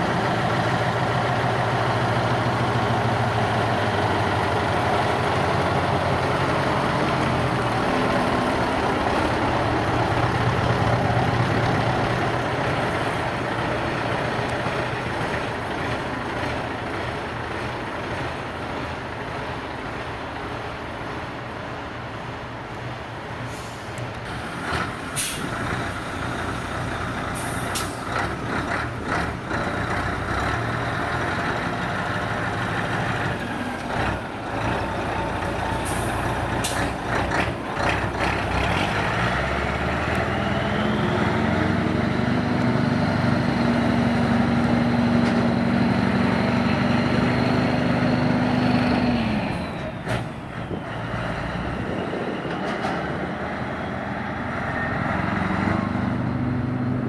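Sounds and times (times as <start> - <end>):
truck engine revving: 0.0 - 20.5, 24.2 - 57.0
short sharp air hisses: 23.5 - 24.0, 25.2 - 25.5.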